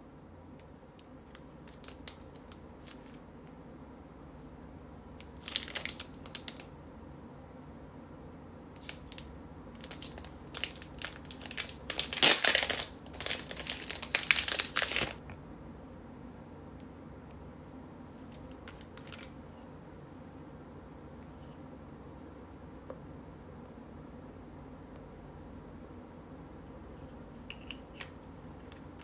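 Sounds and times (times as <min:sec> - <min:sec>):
plastic packaging crinkling: 0:01.2 - 0:03.2, 0:05.2 - 0:06.7, 0:08.8 - 0:15.2.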